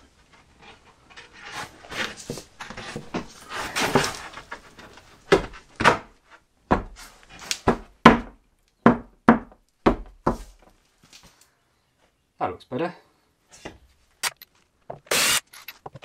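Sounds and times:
wooden board scraping on wood: 0.5 - 5.7
sharp wooden knocks: 6.7 - 7.0, 7.6 - 10.4.

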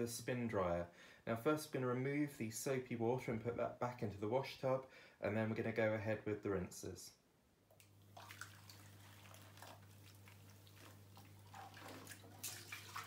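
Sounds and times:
low steady hum: 0.0 - 13.0
water splashing and dripping: 7.8 - 13.0.

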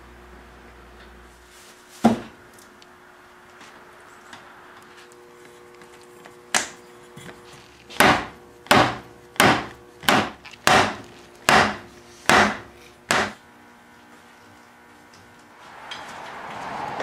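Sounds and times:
mallet knocking wooden chair frame: 8.0 - 13.4.

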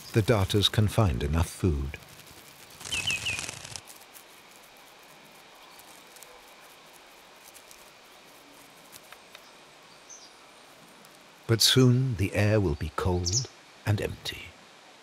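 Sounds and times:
small bird chirping: 2.0 - 11.2
soft ticks: 8.9 - 9.5.

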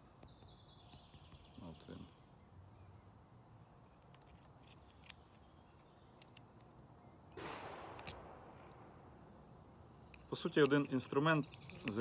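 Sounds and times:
faint metal clicks: 3.9 - 6.7, 10.1 - 12.0
metal parts handling noise: 10.1 - 12.0.

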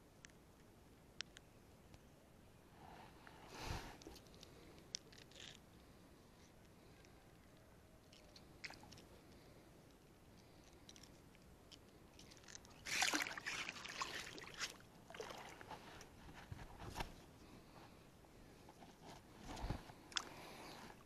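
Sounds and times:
water splashing and sloshing: 8.1 - 9.1, 12.2 - 16.2.

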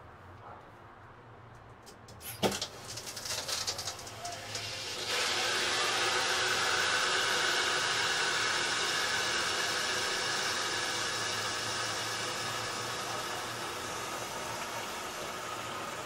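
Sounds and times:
water rushing hiss through valve: 2.2 - 16.0.

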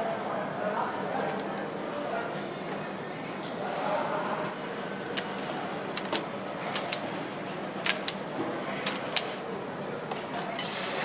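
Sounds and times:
clicks of parts being fitted: 7.8 - 8.2, 8.8 - 9.3.

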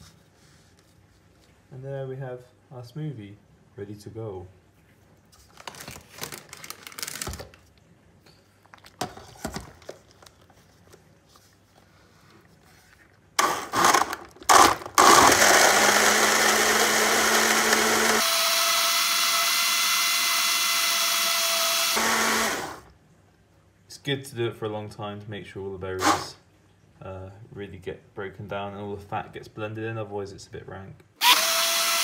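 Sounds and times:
blender blending: 13.4 - 22.9, 26.0 - 26.4, 31.2 - 32.0.

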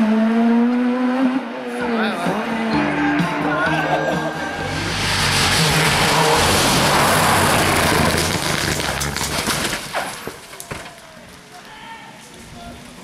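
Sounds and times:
rally car engine at full throttle: 0.0 - 9.7
tyre and road noise: 0.0 - 13.0.

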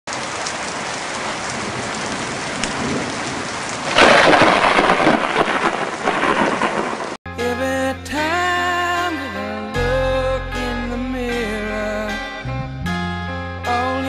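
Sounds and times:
steady rain: 0.1 - 7.2
thunder crack: 1.6 - 7.2.

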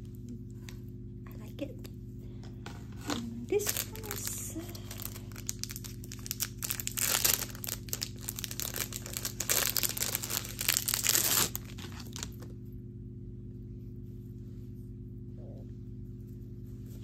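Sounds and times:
plastic packaging crinkling: 2.8 - 12.5.

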